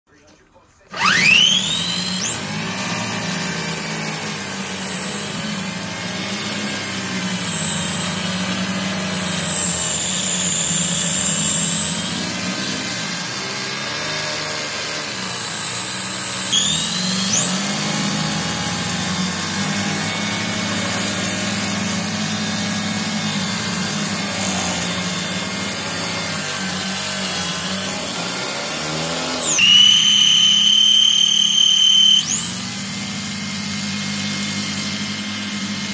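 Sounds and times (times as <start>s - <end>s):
rc car motor whine: 0.9s - 35.9s.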